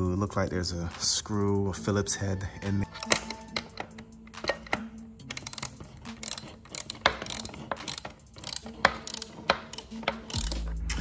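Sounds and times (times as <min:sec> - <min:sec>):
ratcheting hand tool clicking: 0:02.9 - 0:10.8.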